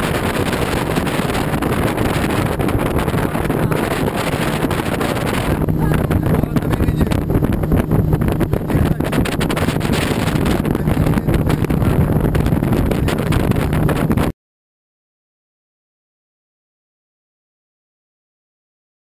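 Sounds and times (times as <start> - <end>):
outboard motor running: 0.0 - 14.3
wind buffeting microphone: 0.0 - 14.4.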